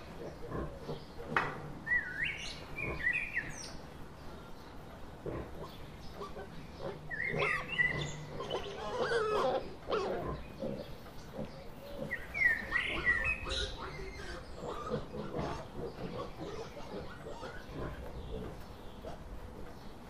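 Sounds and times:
songbirds chirping: 0.0 - 20.0
wild boar rooting in forest floor: 0.0 - 20.0
wild boar grunting: 5.2 - 19.3.

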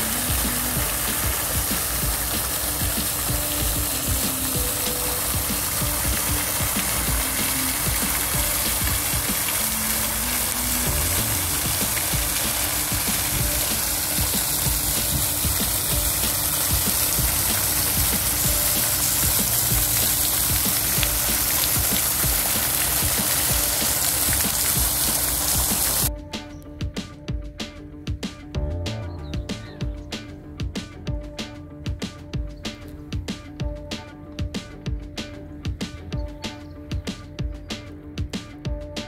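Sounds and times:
fountain water splashing into basin: 0.0 - 26.1.

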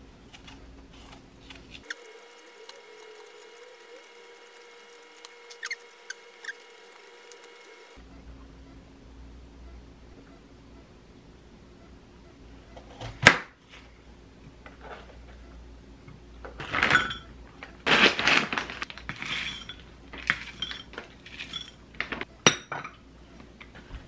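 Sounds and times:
glass and china clinking: 20.4 - 21.8.

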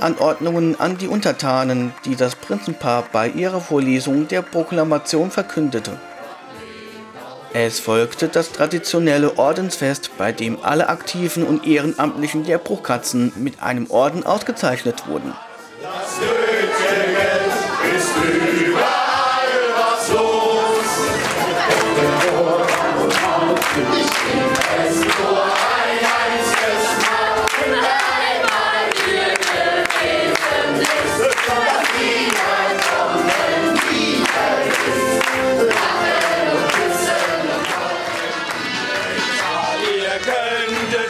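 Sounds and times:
group of people singing: 5.3 - 13.0, 14.0 - 41.0
music with steady beat: 15.7 - 41.0.

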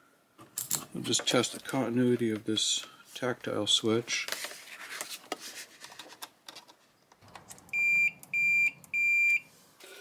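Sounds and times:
multimeter high beeps: 7.7 - 9.5.

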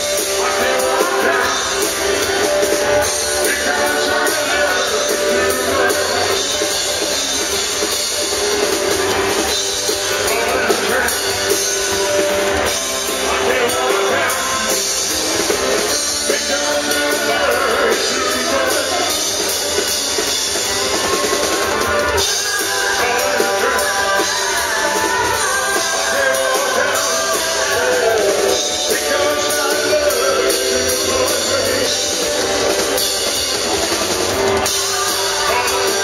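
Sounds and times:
man singing into microphone: 0.0 - 7.1, 10.0 - 11.8, 12.7 - 15.2, 15.9 - 19.5, 22.2 - 32.6, 34.7 - 36.0
drum kit: 0.0 - 36.0
electric guitar: 0.0 - 36.0
live band playing: 0.0 - 36.0.

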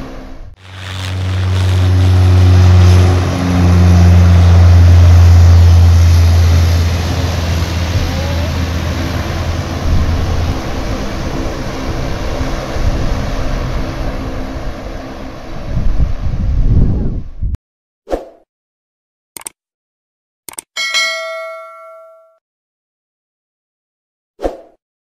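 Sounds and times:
aircraft engines roaring: 0.0 - 16.9
soft rushing noise: 0.6 - 4.6.

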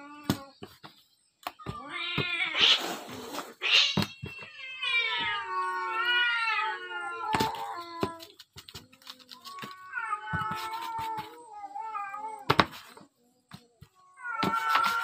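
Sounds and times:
rustle: 2.0 - 5.6
cat meowing: 3.6 - 8.3, 14.2 - 15.0.

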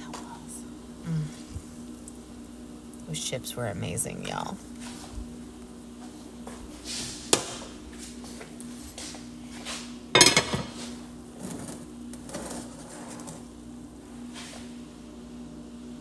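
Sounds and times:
utensils clattering against cookware: 10.2 - 10.9.

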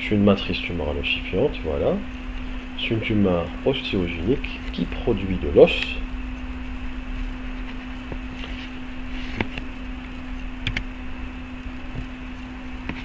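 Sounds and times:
electrical hum: 0.0 - 13.0
low rumble and hiss: 0.0 - 13.0.

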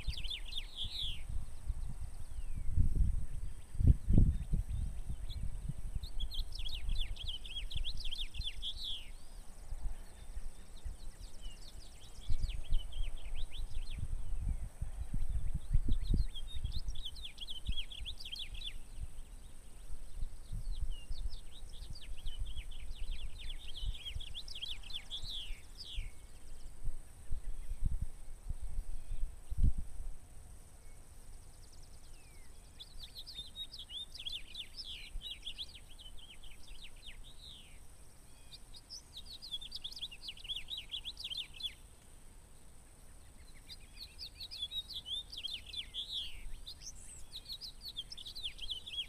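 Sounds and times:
wind buffeting microphone: 0.0 - 30.2
songbird singing: 0.0 - 49.0.

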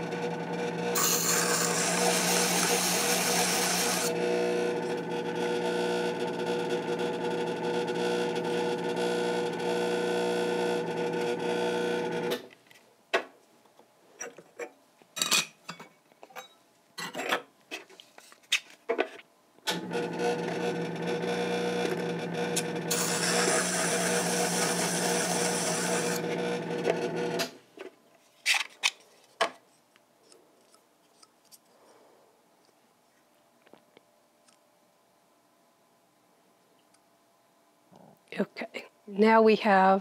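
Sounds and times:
loud hissing metal grind: 0.0 - 4.2, 22.6 - 26.5
grinding wheel humming: 0.0 - 12.4, 19.7 - 27.5.

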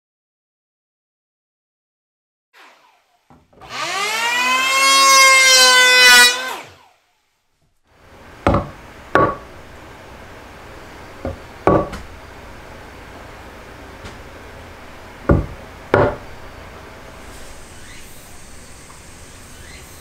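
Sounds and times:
electric hand planer whining: 2.6 - 7.0, 17.0 - 20.0
steel rule knocking on wood: 8.5 - 9.4, 11.2 - 12.0, 15.3 - 16.2.

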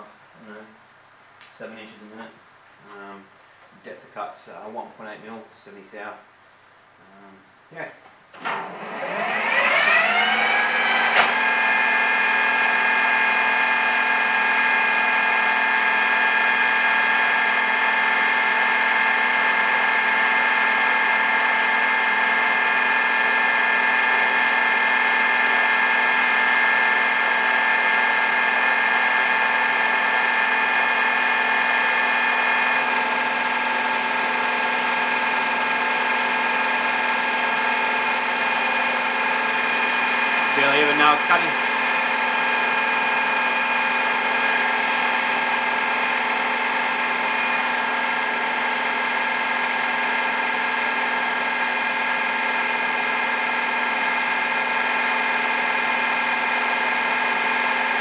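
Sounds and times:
milling machine spindle gear whine: 8.6 - 58.0.

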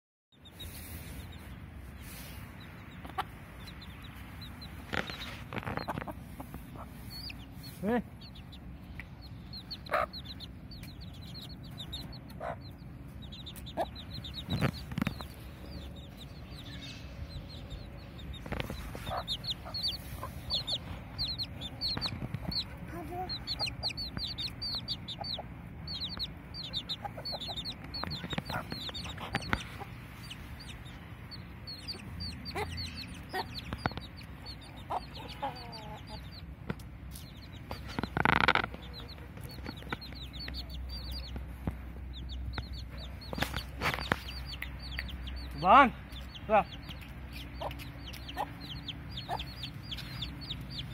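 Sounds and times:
chicks peeping: 0.3 - 50.9
hen clucking: 0.4 - 50.9.

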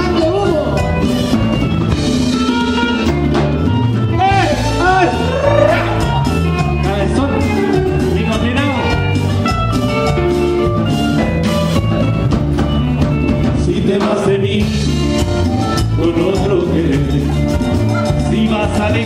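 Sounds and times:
live latin dance band: 0.0 - 19.0
person singing: 5.1 - 6.4.

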